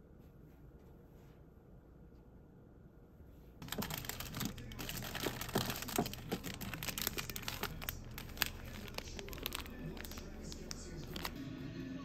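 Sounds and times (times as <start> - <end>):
plastic snack wrappers rustling: 3.6 - 11.4.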